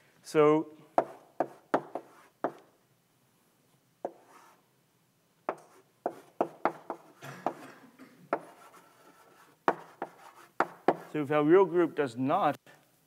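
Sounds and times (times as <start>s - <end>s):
chalk tapping and scraping: 1.0s - 2.7s, 4.0s - 4.6s, 5.5s - 12.0s.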